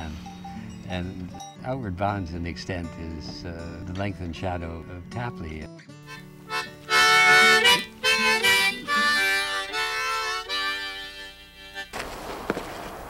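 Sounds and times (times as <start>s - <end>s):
harmonica playing chords: 5.9s - 12.0s.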